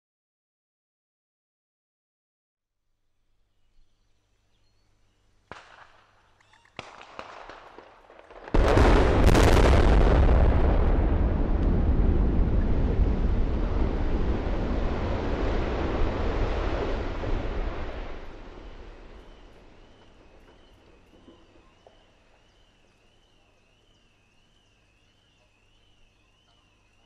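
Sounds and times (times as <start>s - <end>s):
loud explosive blast: 8.4s - 21.4s
heavy rumble of towers collapsing: 8.4s - 21.7s.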